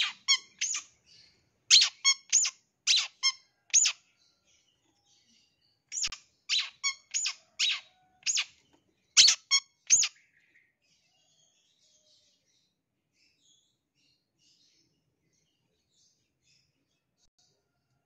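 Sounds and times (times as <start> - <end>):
bird giving sharp squeaky calls: 0.0 - 1.0, 1.7 - 4.0, 5.9 - 8.5, 9.2 - 10.1.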